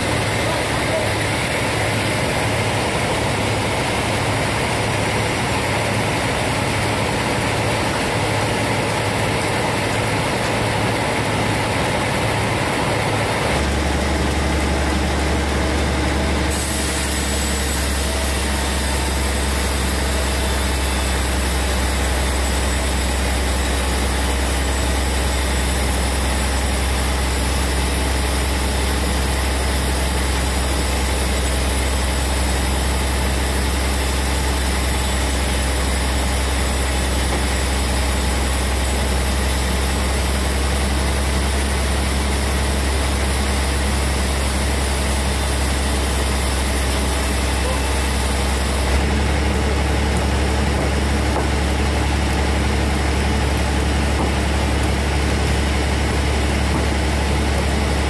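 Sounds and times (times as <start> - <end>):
sawmill machine humming: 0.0 - 58.0
saw blade hissing through wood: 16.5 - 19.5.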